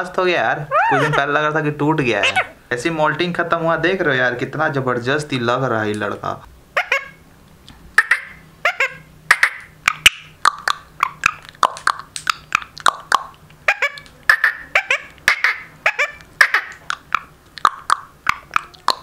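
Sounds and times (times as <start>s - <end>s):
parakeet clucking calls: 0.6s - 2.6s, 6.8s - 7.2s, 8.0s - 19.0s
parakeet beak clicks: 9.8s - 14.2s, 16.2s - 19.0s.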